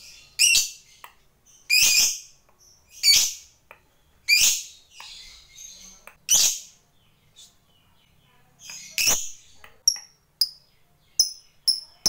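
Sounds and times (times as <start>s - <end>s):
bird chirps: 0.0s - 12.0s.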